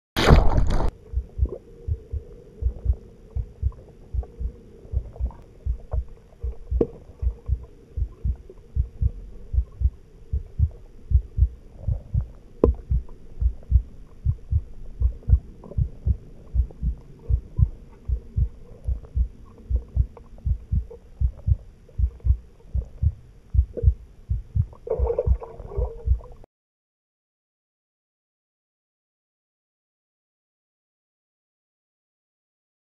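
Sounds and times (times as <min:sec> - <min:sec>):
faint steady hum: 0:00.8 - 0:26.5
low dull thumps: 0:01.0 - 0:26.4
bubbly noise: 0:24.6 - 0:26.4.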